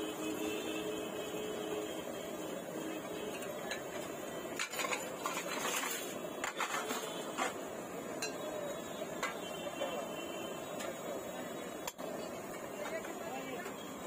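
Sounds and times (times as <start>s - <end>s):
street stall hum: 0.0s - 14.0s
steel utensils clattering: 3.2s - 7.6s
metal spatula scraping griddle: 4.6s - 7.6s.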